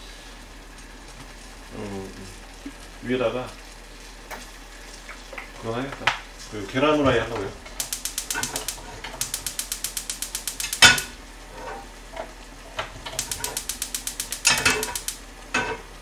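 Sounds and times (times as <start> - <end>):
gas burner igniting burst: 6.2 - 16.0
stove igniter clicking: 7.2 - 15.9.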